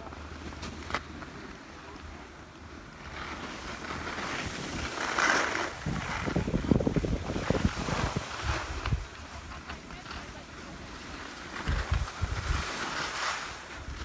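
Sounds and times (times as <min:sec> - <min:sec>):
skis sliding on snow: 0:00.0 - 0:14.0
wind buffeting microphone: 0:04.3 - 0:09.5, 0:11.6 - 0:12.8.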